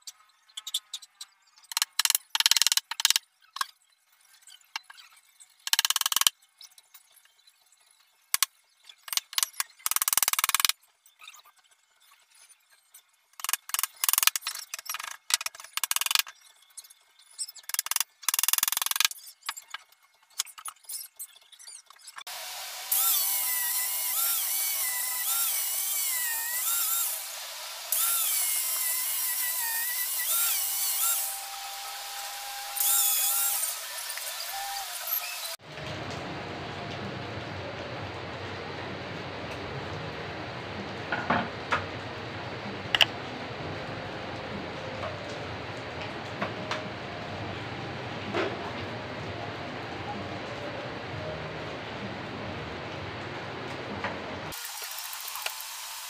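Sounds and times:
angle grinder sanding plywood: 22.3s - 35.6s.

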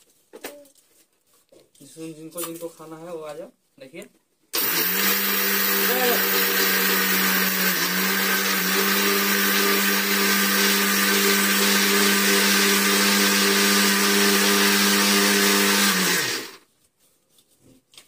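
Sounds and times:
mixer grinder motor: 4.6s - 16.7s.

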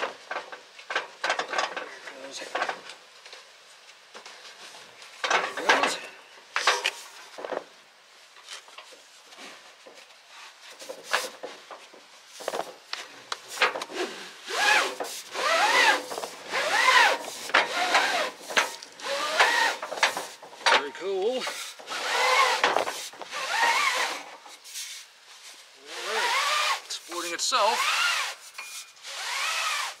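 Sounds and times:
fabric scraping in awning rail: 8.4s - 30.0s
fabric squeaking in rail: 25.8s - 27.1s.

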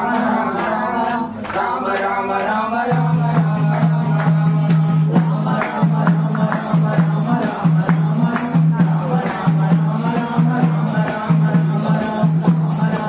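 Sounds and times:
devotional singing: 0.0s - 13.0s
hand percussion beat: 0.0s - 13.0s.

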